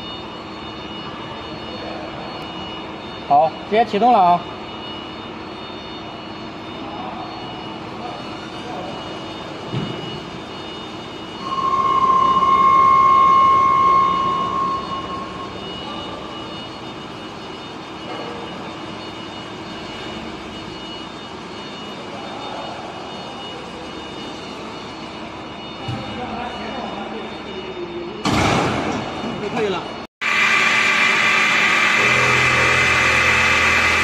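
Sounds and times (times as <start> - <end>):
single-pitched machine whine: 0.0 - 34.0
lathe machine hum: 30.2 - 34.0.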